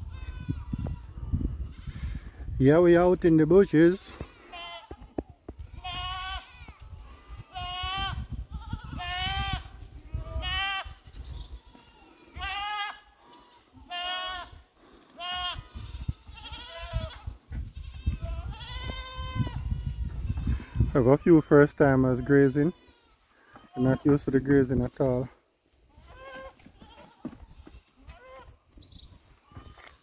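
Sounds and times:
goats bleating: 0:04.1 - 0:24.4, 0:25.9 - 0:28.6, 0:29.4 - 0:30.0.

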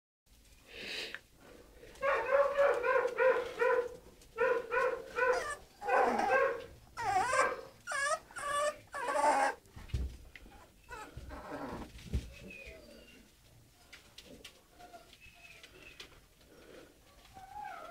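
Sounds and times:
puppies whining: 0:05.2 - 0:09.6, 0:10.5 - 0:13.4, 0:17.3 - 0:17.9.

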